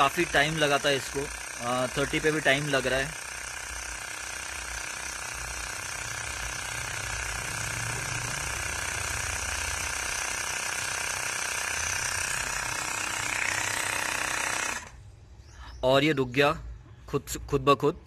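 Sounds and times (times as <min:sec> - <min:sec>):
small air compressor running: 0:00.0 - 0:15.4.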